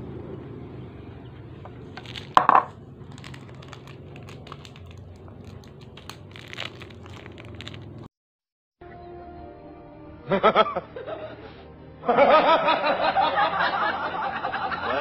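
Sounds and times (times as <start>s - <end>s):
plastic wrappers crinkling: 1.8s - 8.1s.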